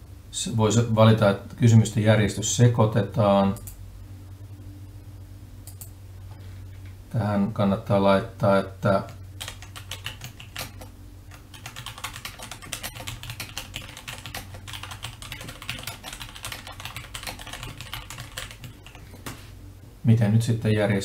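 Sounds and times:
low steady hum: 0.0 - 21.0
keyboard typing: 9.4 - 19.4.

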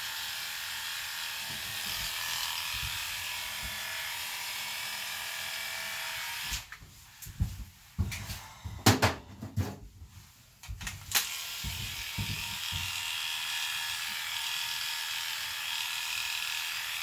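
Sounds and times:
electric pet clippers humming: 0.0 - 6.7, 11.1 - 17.0.

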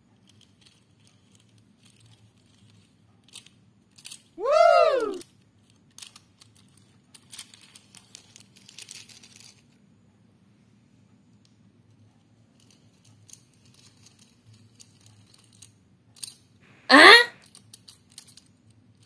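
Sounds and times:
toy trains clicking on plastic track: 0.0 - 9.8, 11.2 - 16.6, 17.4 - 19.0
whooping tone: 4.4 - 5.2.

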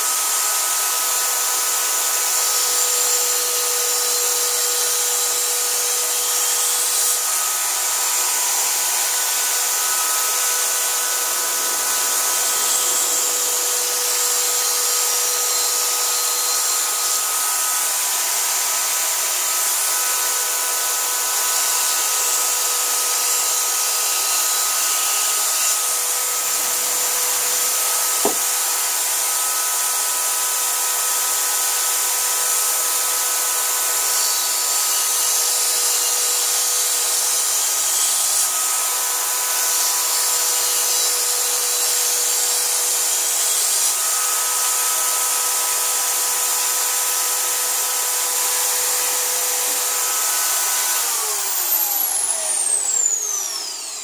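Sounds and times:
electric drill motor whine: 0.0 - 54.0
stone grinding on steel: 28.0 - 28.5.

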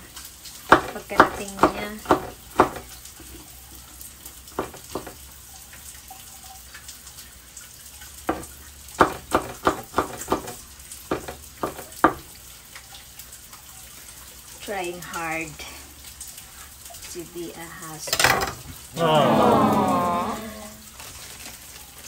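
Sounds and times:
food sizzling: 0.0 - 22.0
utensil knocking against cookware: 8.3 - 12.3.

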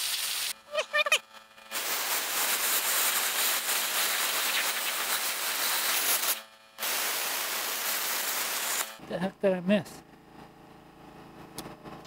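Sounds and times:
plasma cutter arc hissing: 0.0 - 0.6, 1.7 - 9.0.

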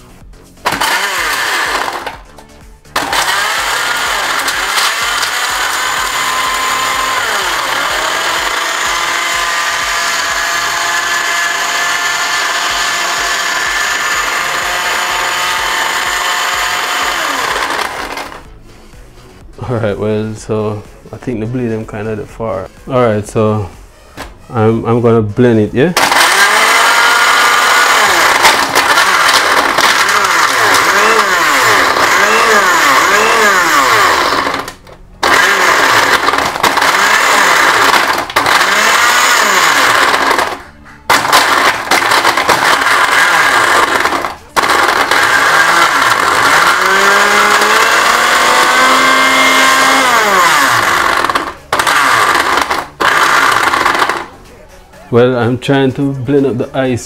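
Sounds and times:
blender motor running on ice: 0.0 - 18.6, 26.0 - 54.4.

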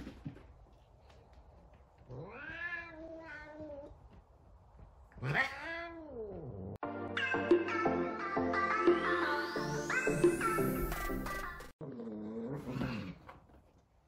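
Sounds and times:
cat meowing: 2.2 - 3.9, 5.2 - 6.4
electronic music: 6.8 - 11.7.

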